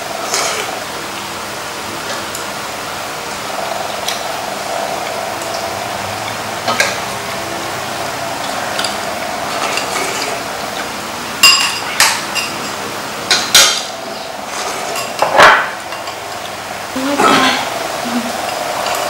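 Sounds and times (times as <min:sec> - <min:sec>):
steady hiss: 0:00.0 - 0:19.0
utensils clattering: 0:08.7 - 0:17.7.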